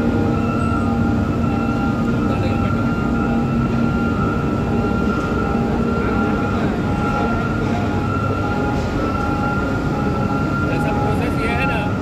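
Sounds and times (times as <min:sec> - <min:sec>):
industrial din: 0:00.0 - 0:12.0
steady high hum: 0:00.0 - 0:12.0
warning tone: 0:00.0 - 0:12.0.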